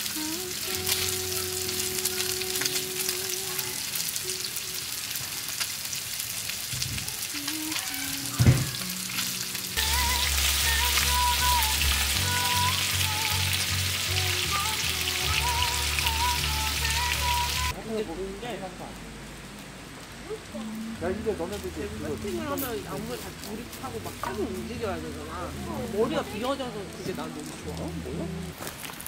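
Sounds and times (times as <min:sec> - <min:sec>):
crackling hiss: 0:00.0 - 0:29.0
sudden sound falling in pitch: 0:08.0 - 0:09.6.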